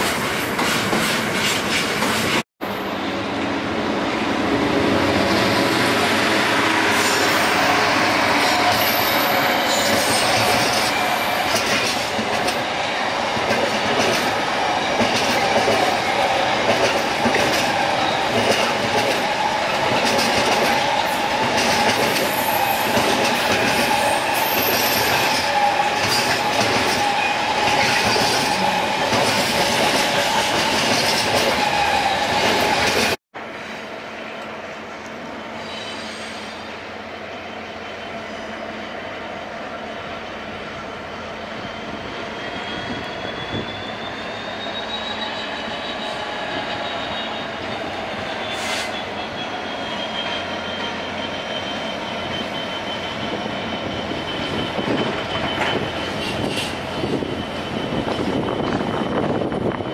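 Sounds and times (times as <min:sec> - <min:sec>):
train wheels rumbling on rails: 0:00.0 - 0:33.2, 0:38.4 - 0:59.9
high-pitched wheel squeals: 0:05.3 - 0:13.3, 0:14.2 - 0:33.2, 0:41.5 - 0:59.9.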